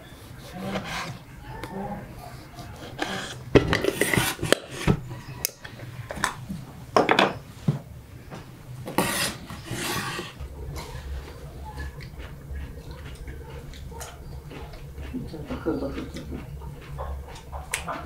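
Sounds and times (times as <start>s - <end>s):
knife scraping across board: 0.4s - 1.2s, 2.7s - 5.0s, 8.9s - 10.9s.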